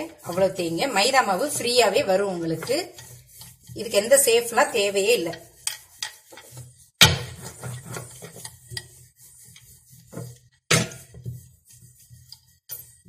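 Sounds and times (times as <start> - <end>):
rolling pin rubbing dough: 0.0 - 13.0.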